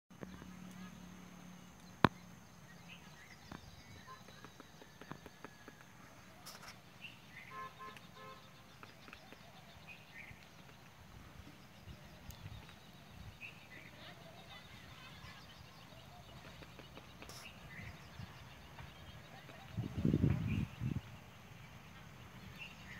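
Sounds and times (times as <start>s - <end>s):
bird chirps: 1.5s - 22.9s
woodpecker pecking on tree trunk: 3.4s - 6.8s, 16.2s - 17.5s.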